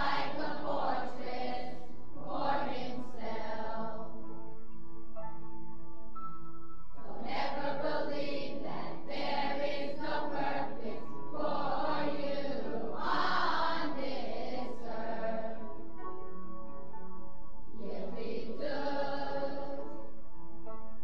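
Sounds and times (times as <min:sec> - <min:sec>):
chorus singing together: 0:00.0 - 0:04.2, 0:07.0 - 0:15.9, 0:17.8 - 0:20.2.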